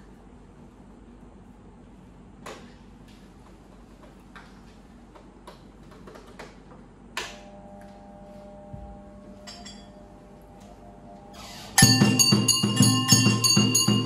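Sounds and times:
ringing metal clink: 9.4 - 10.1, 11.8 - 14.0.

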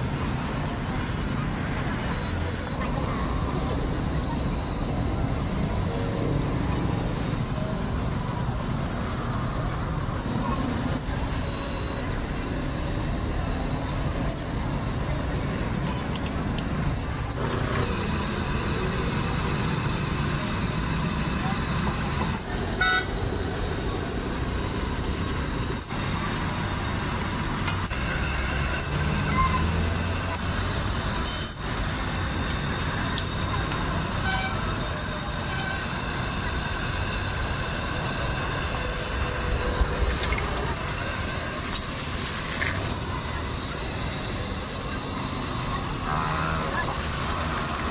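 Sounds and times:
traffic noise: 0.0 - 47.9
background voices: 14.8 - 47.9.

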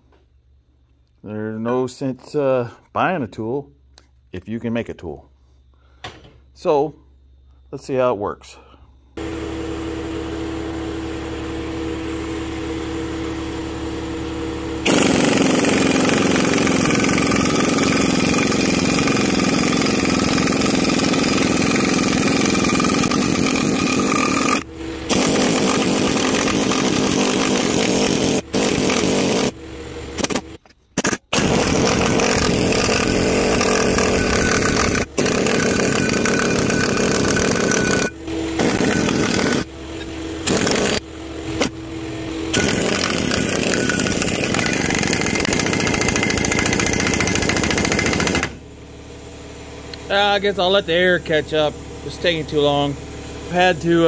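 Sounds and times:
steady hum: 0.0 - 46.2
pneumatic impact wrench hammering: 14.8 - 41.8, 42.5 - 48.6.

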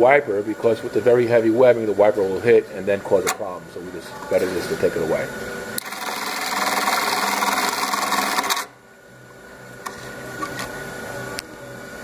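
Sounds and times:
sewing machine stitching: 5.8 - 8.7.

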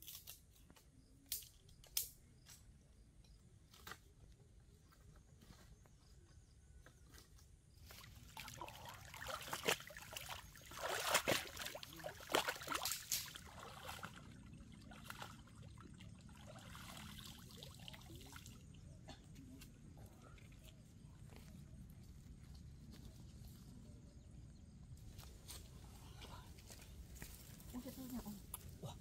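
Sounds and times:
pond water splashing and trickling: 7.1 - 21.8.

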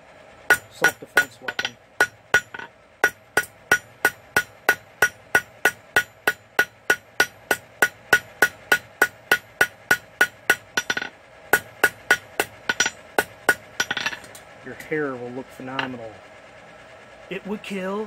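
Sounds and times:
hammer striking steel on anvil: 0.5 - 14.3.

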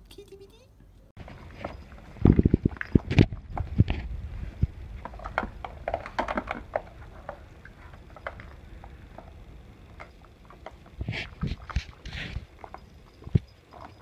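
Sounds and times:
paws and balls clicking on plastic: 5.0 - 14.0.

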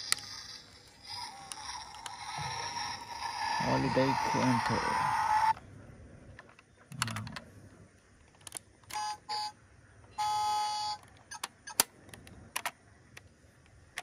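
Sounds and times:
plastic clicks of toy doors: 8.3 - 9.0, 11.0 - 13.2
electronic toy beeps: 10.2 - 11.8.

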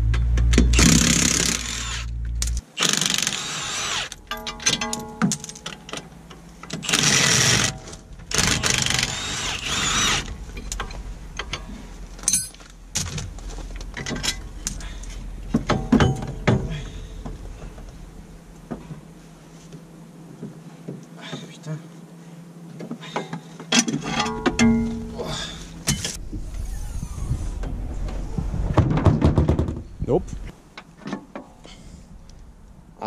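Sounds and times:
metallic knocks and clinks: 4.2 - 6.5, 10.6 - 12.7, 15.6 - 16.7, 23.2 - 25.2
impact wrench hammering bolts: 4.3 - 6.1.

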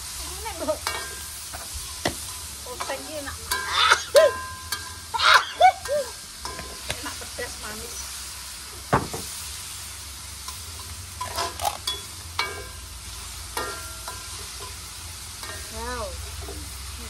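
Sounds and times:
vegetables sizzling in a wok: 0.0 - 17.0
metal spatula scraping wok: 0.1 - 5.2, 6.3 - 17.0
spatula clanking against wok: 0.8 - 5.2, 5.8 - 7.2, 10.4 - 12.8, 13.5 - 16.8.

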